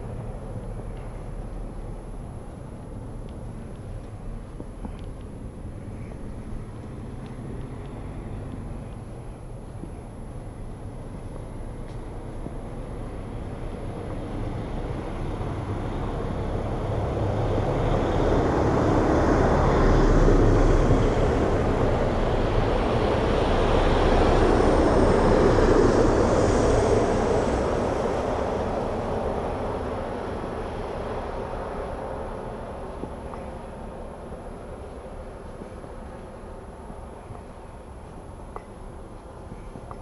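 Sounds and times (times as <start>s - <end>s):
vehicle passing by: 13.2s - 33.0s.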